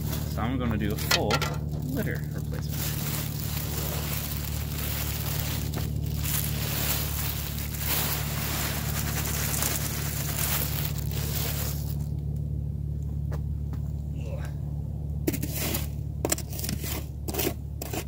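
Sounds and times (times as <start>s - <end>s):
cat litter granules pouring: 0.0s - 12.1s
plastic bag crinkling: 0.0s - 12.2s.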